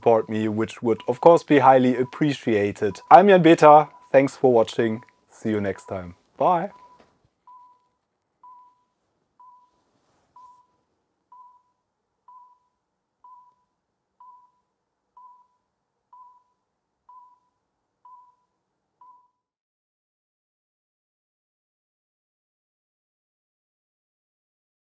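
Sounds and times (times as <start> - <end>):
faint electronic beeps: 0.1 - 19.5.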